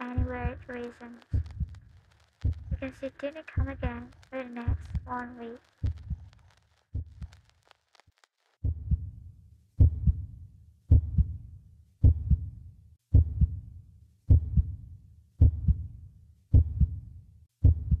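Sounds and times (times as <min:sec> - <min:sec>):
heartbeat double thump: 0:00.2 - 0:00.6, 0:02.4 - 0:02.9, 0:03.6 - 0:04.0, 0:05.8 - 0:06.3, 0:08.6 - 0:09.1, 0:09.8 - 0:10.3, 0:10.9 - 0:11.4, 0:12.0 - 0:12.5, 0:13.1 - 0:13.6, 0:14.3 - 0:14.8, 0:15.4 - 0:15.8, 0:16.5 - 0:17.0, 0:17.6 - 0:18.0.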